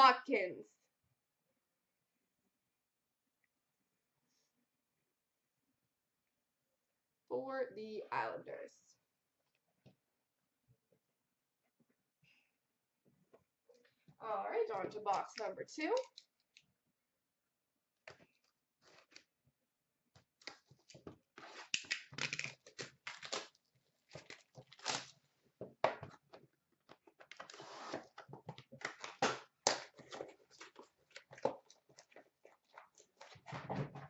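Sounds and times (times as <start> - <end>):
shrink-wrap tearing and crinkling: 21.4 - 25.2.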